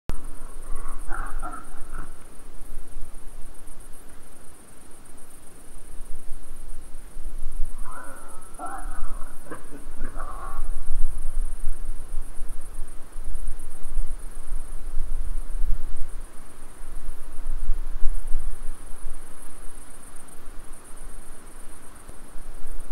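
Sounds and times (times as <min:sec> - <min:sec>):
insects chirping: 0:00.1 - 0:22.9
animal calling: 0:00.3 - 0:02.2, 0:07.7 - 0:10.8.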